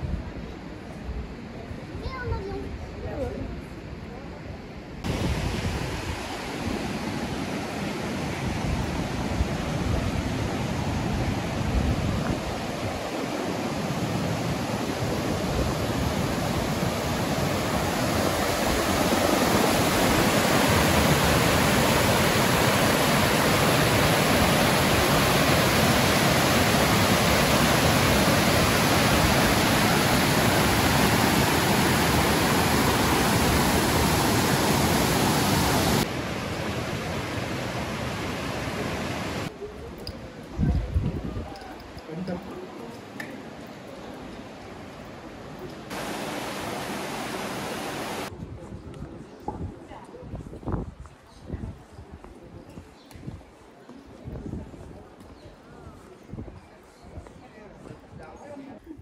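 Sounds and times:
river water rushing over rocks: 5.1 - 39.5, 45.7 - 48.3.

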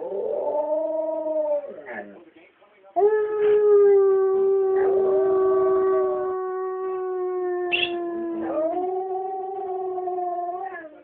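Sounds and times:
dog howling: 3.0 - 11.0.

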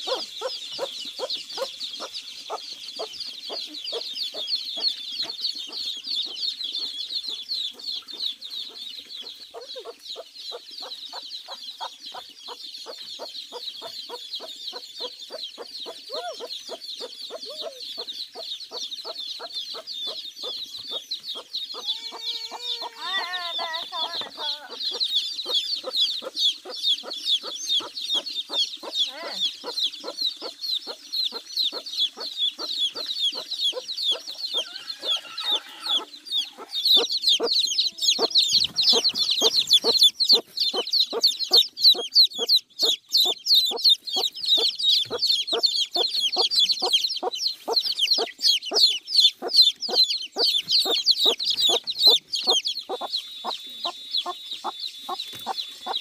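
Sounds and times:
chicks peeping: 0.0 - 56.0
rhythmic clucking: 35.9 - 56.0.

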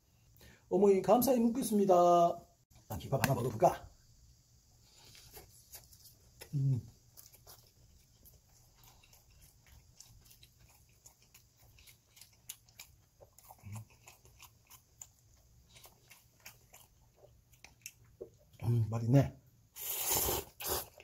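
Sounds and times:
person chewing with mouth clicks: 5.0 - 18.6.

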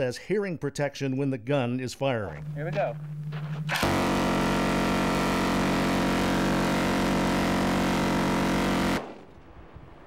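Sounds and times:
minigun firing burst: 3.7 - 9.3.

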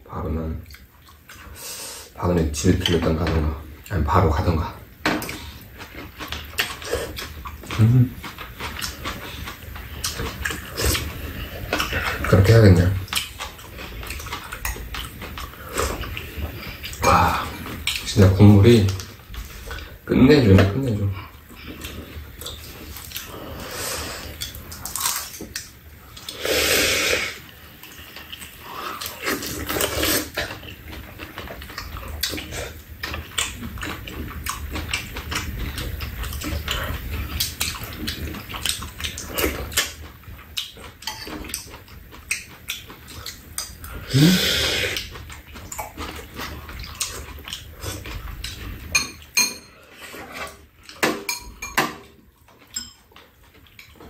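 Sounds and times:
low steady hum: 0.0 - 26.4
person slurping soup: 26.3 - 27.4, 28.6 - 30.4, 44.0 - 45.1
spoons clinking against bowls: 41.0 - 41.4, 48.9 - 49.8, 51.0 - 52.1, 52.7 - 53.0.

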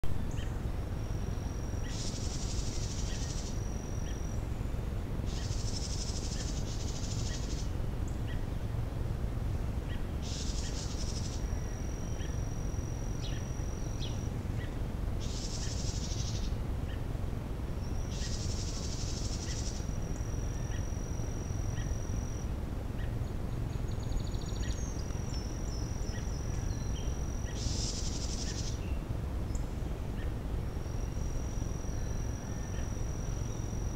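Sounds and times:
high buzzy insect calls: 0.0 - 33.9
steady high trill: 0.6 - 4.5, 10.3 - 14.4, 18.0 - 22.5, 30.6 - 33.9.

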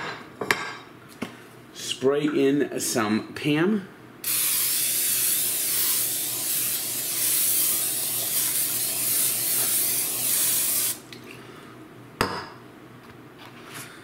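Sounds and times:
aerosol spray hissing: 4.2 - 11.0.

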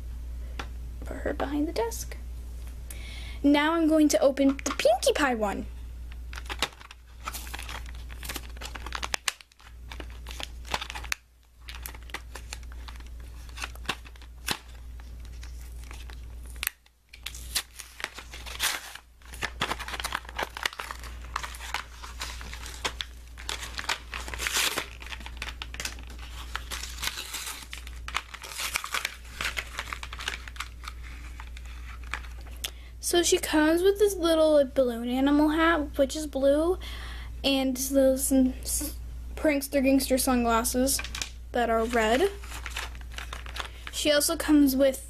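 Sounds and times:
plastic blister pack crinkling: 6.1 - 32.8, 40.7 - 44.2
cardboard tearing: 6.4 - 32.3.

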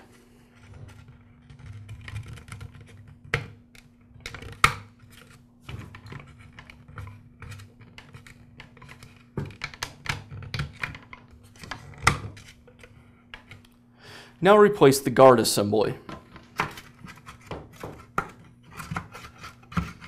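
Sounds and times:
faint steady hum: 0.0 - 20.0
plastic clicks and knocks: 5.7 - 13.7.

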